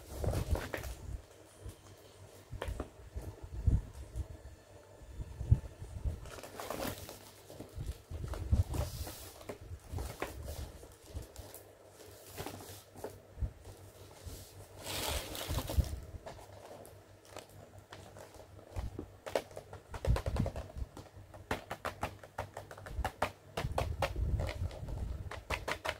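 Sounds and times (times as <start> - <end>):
shopping bag rustling: 0.0 - 2.1, 6.0 - 19.0.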